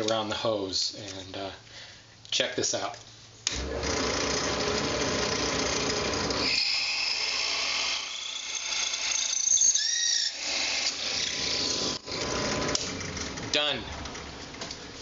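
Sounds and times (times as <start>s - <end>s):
drill press running: 3.5s - 14.8s
high whine of drill cutting: 3.6s - 12.8s.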